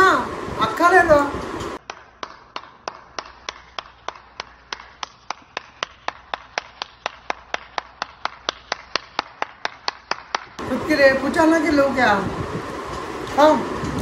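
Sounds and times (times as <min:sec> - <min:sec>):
person clapping hands: 0:01.8 - 0:10.6.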